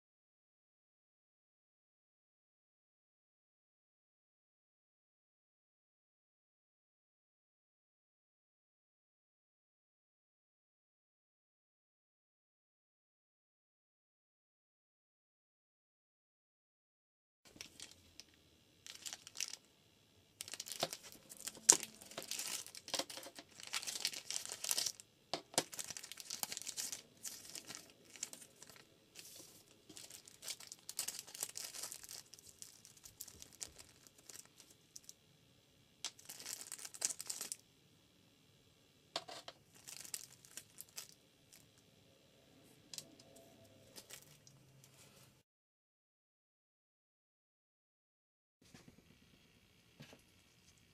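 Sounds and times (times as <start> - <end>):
plastic packaging crinkling: 17.5 - 19.7, 20.4 - 35.2, 36.1 - 37.6, 39.2 - 41.7, 43.9 - 44.6.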